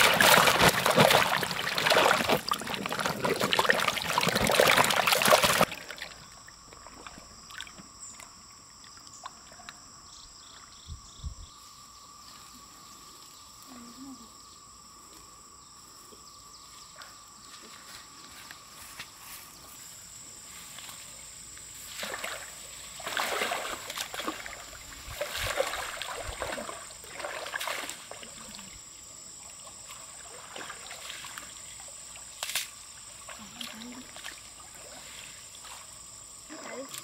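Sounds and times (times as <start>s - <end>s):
water splashing and sloshing: 0.0s - 9.6s, 21.8s - 28.8s, 29.4s - 37.0s
high insect buzz: 7.3s - 37.0s.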